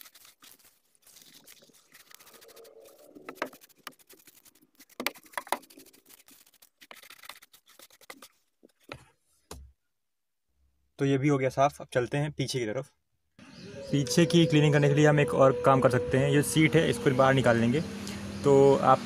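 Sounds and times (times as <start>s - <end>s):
brush scrubbing carpet: 0.0s - 8.3s.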